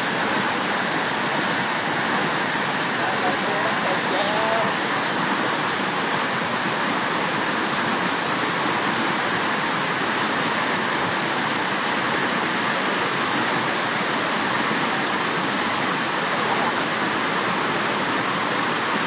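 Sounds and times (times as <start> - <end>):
water rushing over spillway: 0.0 - 19.0.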